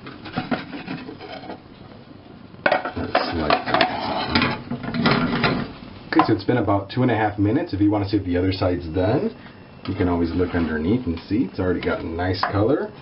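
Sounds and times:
pan and plate knocking and scraping: 0.0 - 1.6, 2.6 - 5.7.

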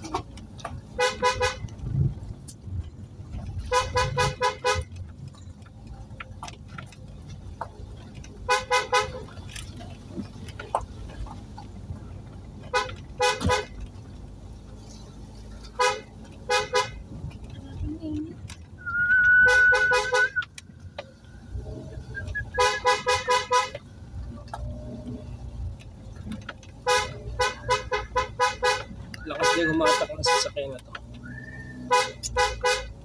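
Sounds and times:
car engine hum: 0.0 - 33.0
car horn toots: 1.0 - 1.7, 3.6 - 5.0, 8.5 - 9.3, 12.6 - 13.8, 15.7 - 17.0, 18.8 - 20.5, 22.1 - 23.8, 26.8 - 30.6, 31.3 - 33.0.

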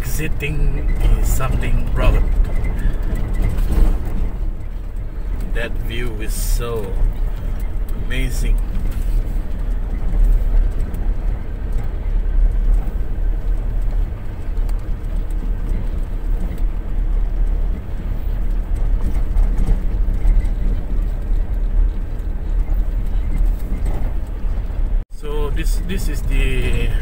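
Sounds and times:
car engine and tyres rumbling: 0.0 - 27.0.

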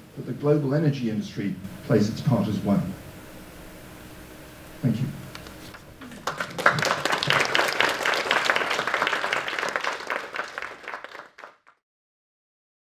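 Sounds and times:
audience applauding: 5.7 - 11.8.

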